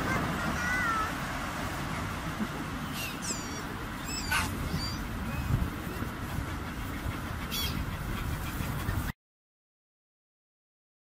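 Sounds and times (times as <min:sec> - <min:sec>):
gulls calling: 0:00.0 - 0:09.1
low outdoor rumble: 0:00.0 - 0:09.1.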